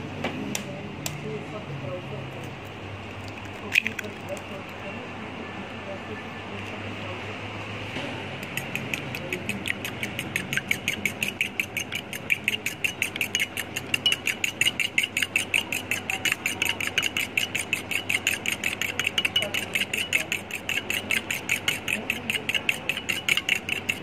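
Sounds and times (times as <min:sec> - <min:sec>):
metal utensil clinking on glass bowl: 0:08.5 - 0:24.0.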